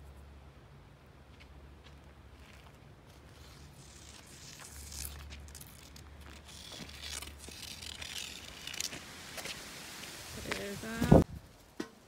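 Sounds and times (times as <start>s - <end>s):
footsteps through dry grass: 1.8s - 11.7s
crackles and crinkles: 1.8s - 11.8s.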